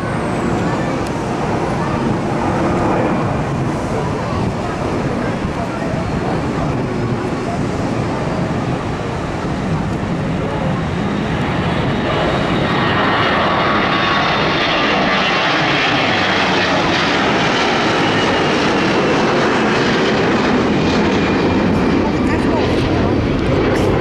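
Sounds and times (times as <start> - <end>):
jet engines at takeoff power: 0.0 - 24.0.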